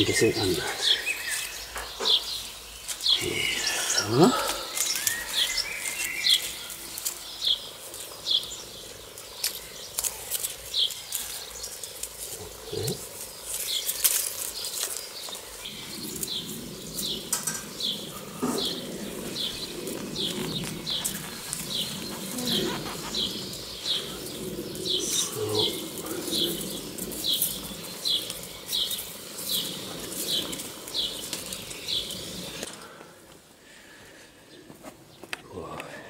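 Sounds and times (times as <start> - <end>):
hands scraping garden soil: 1.0 - 32.7
bird high falling call: 17.4 - 27.1.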